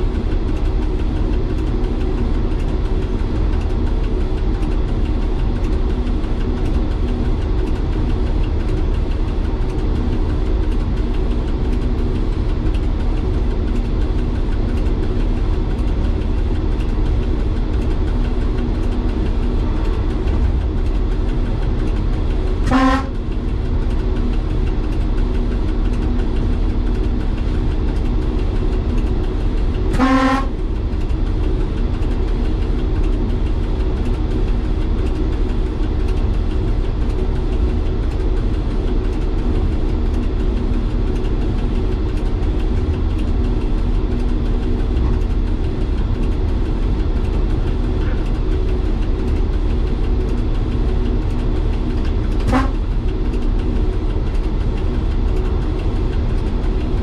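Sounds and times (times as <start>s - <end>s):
railcar diesel engine running: 0.0s - 57.0s
train horn blasts: 22.6s - 23.3s, 29.9s - 30.6s, 52.4s - 52.8s.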